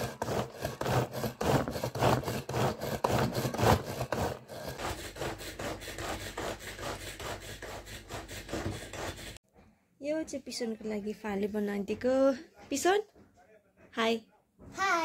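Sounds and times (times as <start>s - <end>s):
manual food chopper chopping: 0.0s - 6.6s.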